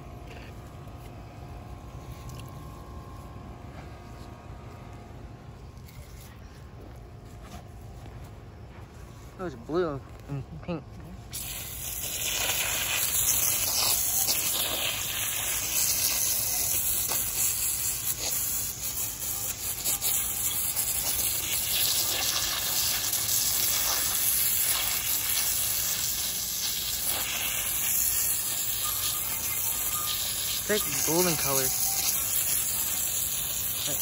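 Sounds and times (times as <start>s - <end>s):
hose spraying water onto soil: 11.3s - 34.0s.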